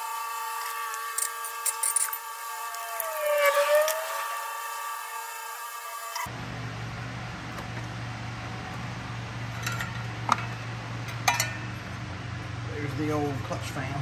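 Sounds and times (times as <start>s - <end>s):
steady low hum: 6.2s - 14.0s.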